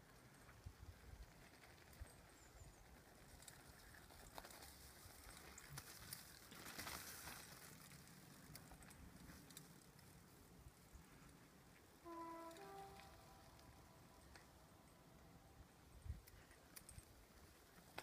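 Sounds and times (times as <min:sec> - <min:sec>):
bike rolling past on dirt: 0:00.0 - 0:14.3
faint outdoor ambience: 0:00.0 - 0:18.0
faint clicks: 0:11.2 - 0:15.3.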